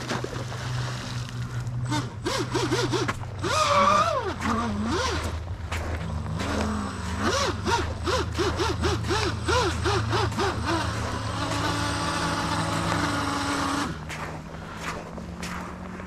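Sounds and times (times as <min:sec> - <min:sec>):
electric boat motor whine: 0:00.0 - 0:16.0.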